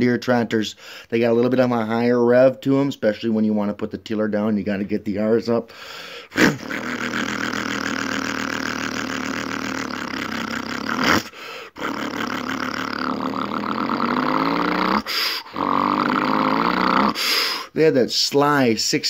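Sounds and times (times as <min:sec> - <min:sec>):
man imitating tractor engine: 0:06.3 - 0:17.3.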